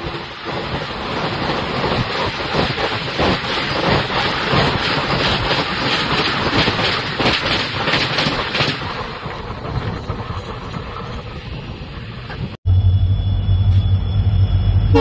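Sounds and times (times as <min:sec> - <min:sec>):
train wheels clattering on rails: 0:00.0 - 0:12.6
loud low hum: 0:12.7 - 0:15.0.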